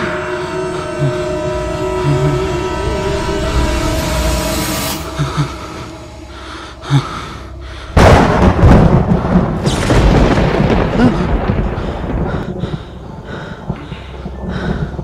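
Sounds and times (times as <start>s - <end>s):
loud rumbling boom: 8.0s - 13.4s.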